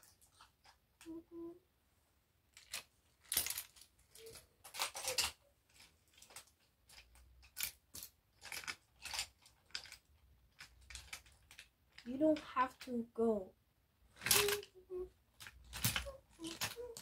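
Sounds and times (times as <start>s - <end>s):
wooden toy train cars clacking: 2.5s - 13.0s, 14.1s - 17.0s.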